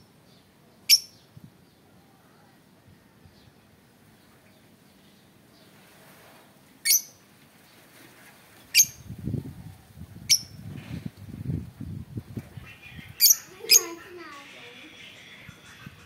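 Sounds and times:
lovebirds shrieking: 12.5 - 14.0.

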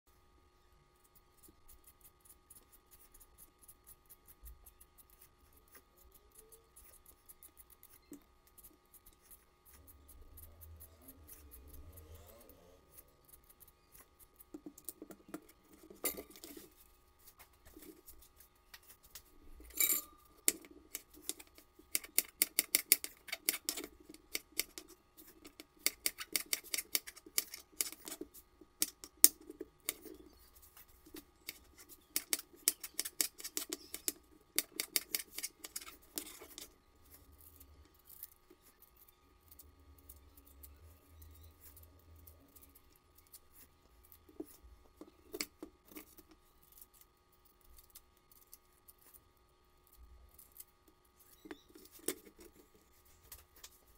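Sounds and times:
peeler scraping potato skins: 1.2 - 49.3, 49.9 - 53.9.

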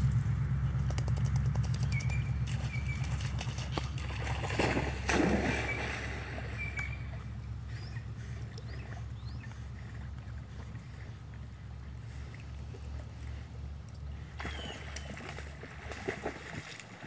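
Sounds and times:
low rumble: 0.0 - 16.3
bird chirping: 1.6 - 3.6, 6.5 - 9.6
dog paddling through water: 1.9 - 17.0
dog splashing into water: 2.4 - 7.2, 14.4 - 17.0.

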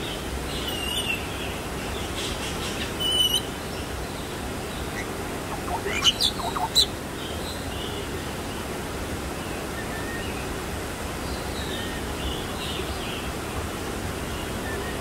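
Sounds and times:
steady outdoor hiss: 0.0 - 15.0
faint bird chirps: 4.9 - 6.9.

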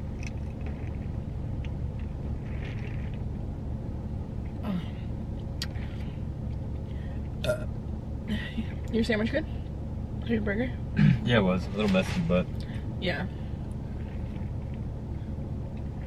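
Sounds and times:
low rumble inside a car: 0.0 - 16.0
woman burping: 7.4 - 7.7, 11.0 - 11.3.

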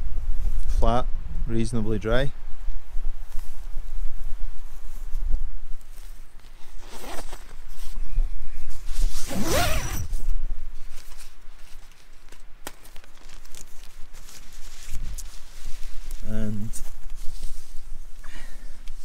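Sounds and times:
tent zip pulled open: 6.5 - 8.0, 8.7 - 11.1.

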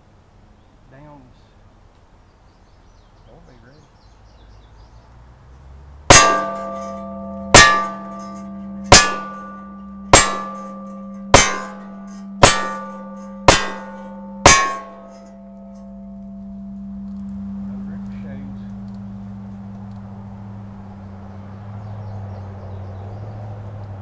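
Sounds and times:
steel plate ringing: 6.1 - 18.3.

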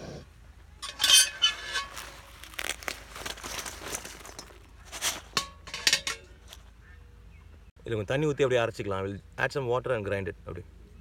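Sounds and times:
spices rustling against steel: 0.8 - 6.7.

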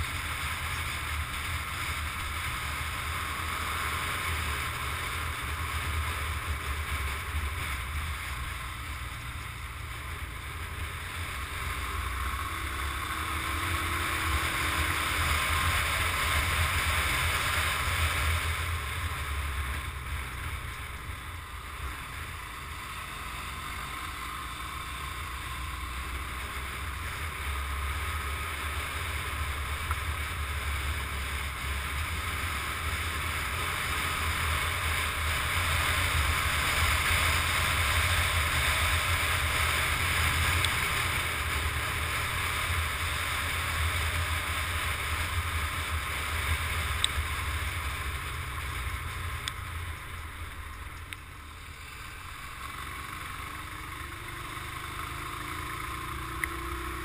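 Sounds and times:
motorcycle engine running: 0.0 - 57.0
road noise: 0.0 - 57.0.

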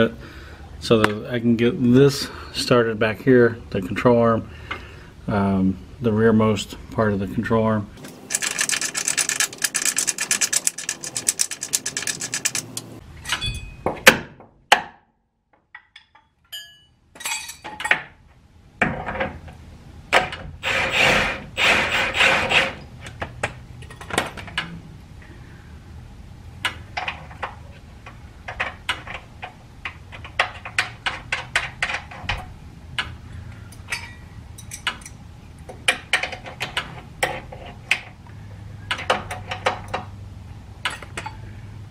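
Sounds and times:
metal tools clinking: 8.3 - 13.9, 15.8 - 18.0, 23.8 - 24.5, 33.7 - 35.2.

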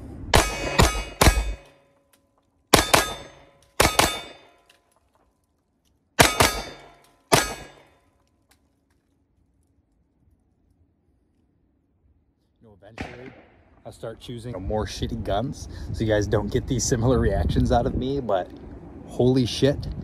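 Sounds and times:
pistol shots with ringing tail: 0.3 - 1.9, 2.7 - 4.7, 6.2 - 8.0, 13.0 - 13.7.

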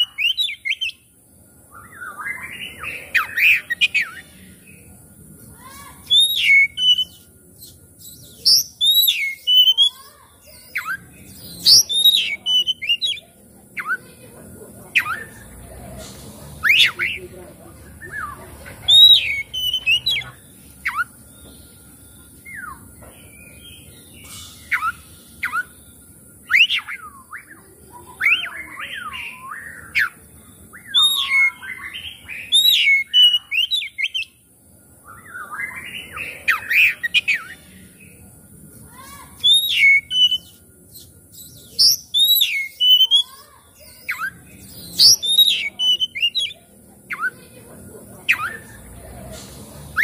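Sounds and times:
bird singing whistled phrases: 0.0 - 1.1, 1.7 - 4.3, 6.0 - 14.1, 15.0 - 15.4, 16.6 - 17.2, 18.0 - 21.2, 22.4 - 34.4, 35.0 - 37.7, 39.4 - 47.4.

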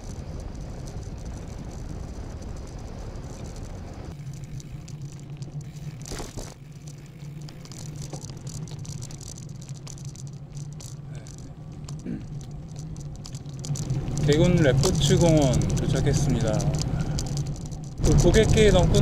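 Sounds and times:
wind on microphone: 0.0 - 4.8
bicycle frame rattling: 0.0 - 19.0
steady low hum: 0.0 - 19.0.

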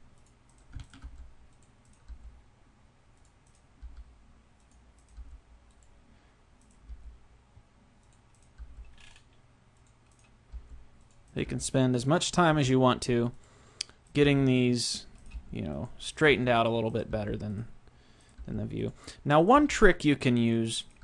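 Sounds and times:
steady low hum: 0.0 - 21.0
mouse and keyboard clicks: 8.0 - 11.2
soft low thumps: 10.5 - 10.9.

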